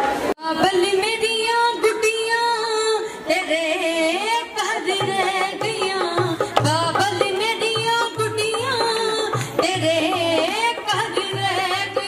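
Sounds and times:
high folk singing: 0.4s - 12.0s
steady drum beat: 4.9s - 12.0s.

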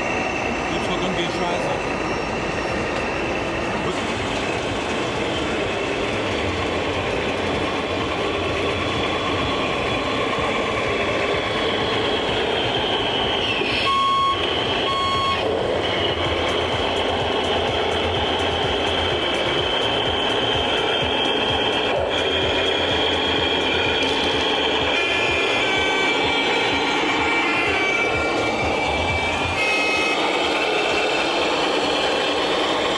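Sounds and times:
short electronic beeps: 13.7s - 15.5s, 28.1s - 30.6s.

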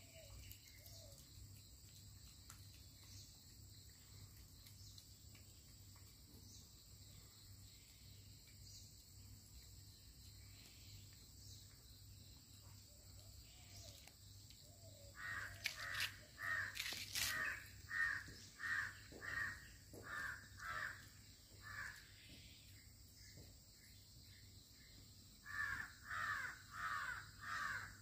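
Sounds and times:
crow cawing: 15.2s - 22.0s, 25.5s - 28.0s.

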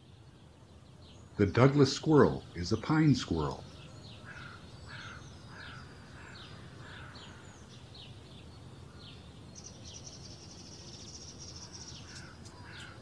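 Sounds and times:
small birds chirping: 0.0s - 13.0s
steady background noise: 0.0s - 13.0s.

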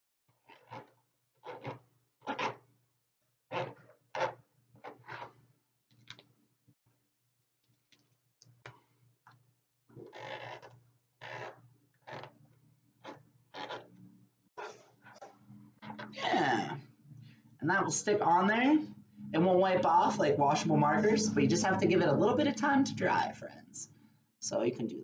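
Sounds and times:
marker scratching on plastic: 0.4s - 2.7s, 3.5s - 5.4s, 10.0s - 12.4s, 13.0s - 14.0s.

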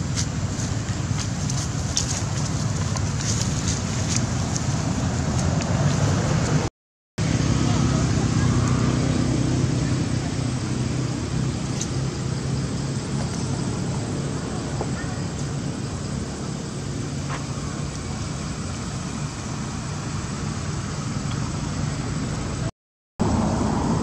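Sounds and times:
low vehicle engine hum: 0.0s - 24.0s
road traffic noise: 0.0s - 24.0s
faint voices: 7.4s - 11.2s, 14.4s - 19.1s.

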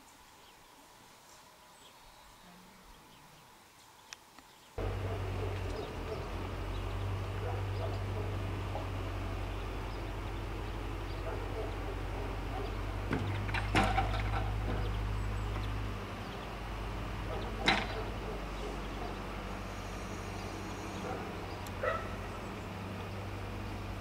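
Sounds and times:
dog barking: 4.8s - 6.5s, 7.3s - 9.0s, 11.1s - 12.9s, 17.2s - 19.4s, 20.9s - 22.3s
low steady hum: 4.8s - 24.0s.

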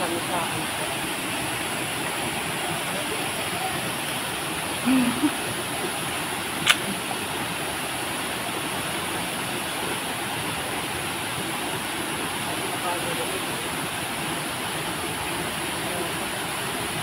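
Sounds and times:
waterfall rushing: 0.0s - 17.0s
sharp click: 6.6s - 6.9s.

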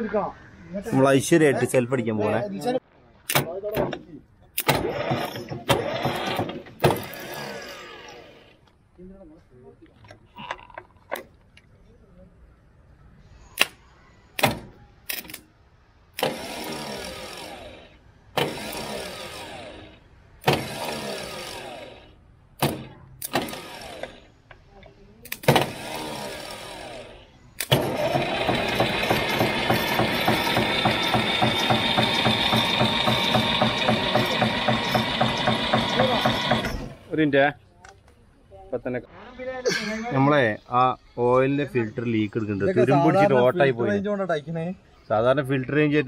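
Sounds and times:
starter motor cranking: 4.6s - 8.6s, 16.1s - 24.4s, 25.3s - 37.1s
diesel engine running: 25.7s - 37.1s.

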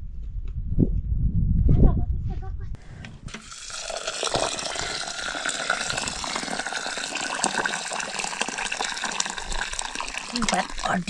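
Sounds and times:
water pouring into metal pot: 3.3s - 11.0s.

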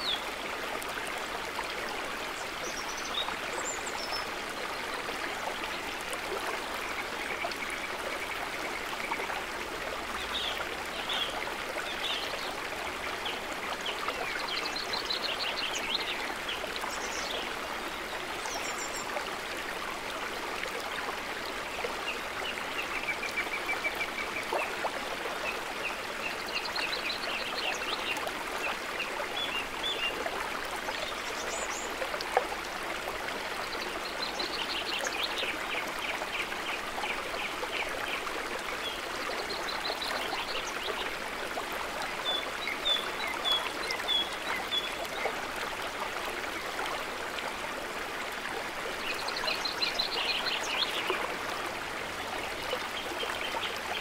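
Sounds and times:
stream running over rocks: 0.0s - 54.0s.

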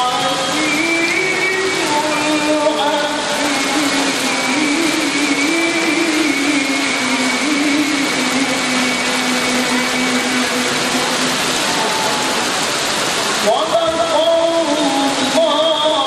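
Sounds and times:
man reciting through a microphone: 0.0s - 8.6s, 13.4s - 16.0s
heavy rain hissing: 0.0s - 16.0s.

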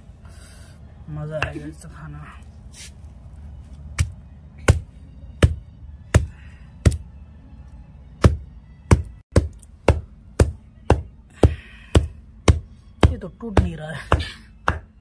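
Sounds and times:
stone pestle knocking on stone: 8.2s - 15.0s.

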